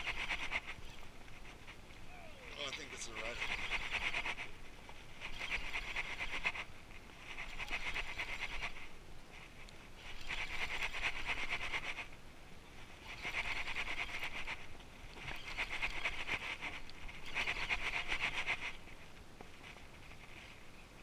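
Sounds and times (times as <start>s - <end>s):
fishing reel whirring: 2.3s - 4.5s, 5.1s - 6.6s, 10.0s - 11.9s, 15.3s - 18.8s.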